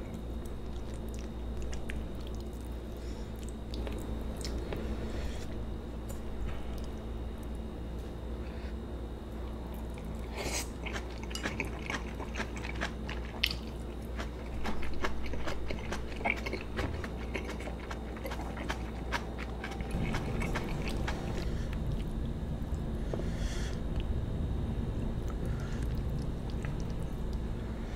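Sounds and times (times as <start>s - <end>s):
chewing with wet mouth sounds: 0.0s - 4.8s, 9.4s - 22.8s, 25.1s - 27.9s.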